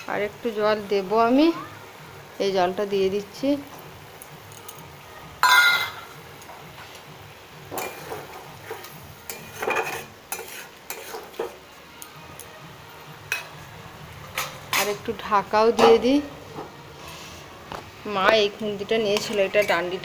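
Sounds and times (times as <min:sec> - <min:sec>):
metal spatula scraping curry: 0:07.8 - 0:11.5.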